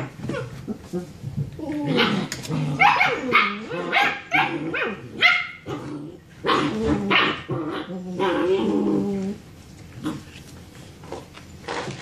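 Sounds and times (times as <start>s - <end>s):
puppies barking and yipping: 2.0s - 5.7s.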